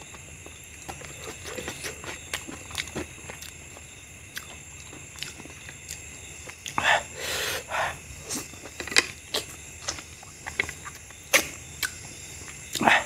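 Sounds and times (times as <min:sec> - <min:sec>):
wet chewing: 0:00.0 - 0:07.1, 0:07.9 - 0:13.0
lip smacks and sucking clicks: 0:09.3 - 0:12.9.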